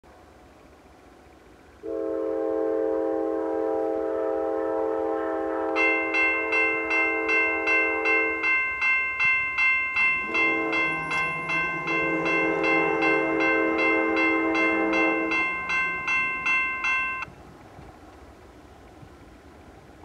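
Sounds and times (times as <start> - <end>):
train air horn blast: 1.8 - 8.4, 10.2 - 16.3
crossing bell ringing: 5.6 - 17.3.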